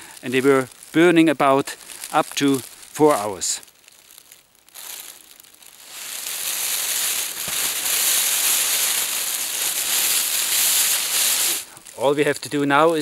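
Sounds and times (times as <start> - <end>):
foil blanket crinkling: 0.0 - 13.0.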